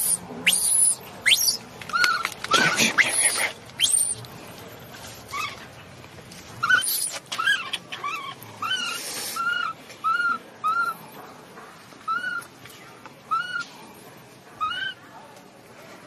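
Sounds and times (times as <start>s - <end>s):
baby monkey squealing: 0.0s - 4.2s, 5.3s - 5.6s, 6.6s - 11.0s, 12.1s - 12.5s, 13.3s - 13.6s, 14.6s - 15.0s.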